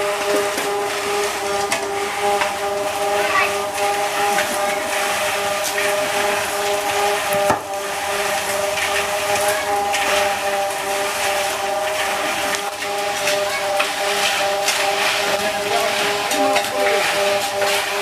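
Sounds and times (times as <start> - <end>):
motor humming: 0.0 - 18.0
scraping and knocking of work: 0.0 - 18.0.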